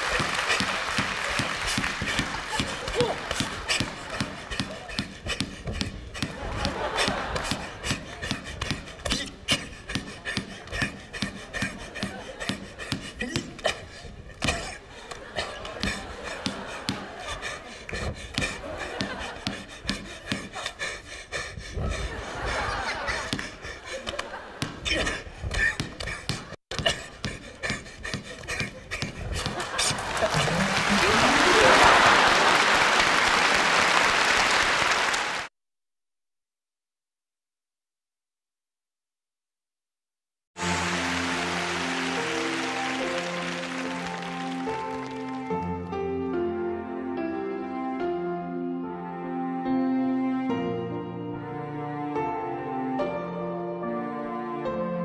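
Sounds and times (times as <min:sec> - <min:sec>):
audience applauding: 0:00.0 - 0:05.0, 0:06.3 - 0:08.2, 0:29.5 - 0:35.5, 0:40.6 - 0:45.7
crowd noise: 0:00.0 - 0:09.1, 0:15.0 - 0:19.8, 0:22.1 - 0:24.9, 0:28.4 - 0:35.5, 0:40.6 - 0:45.8.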